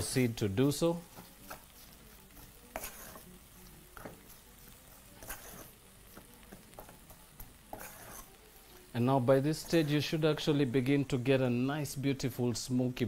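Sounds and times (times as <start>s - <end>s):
low sizzle of pot: 0.0s - 13.0s
spoon scraping and knocking pot: 2.4s - 8.3s.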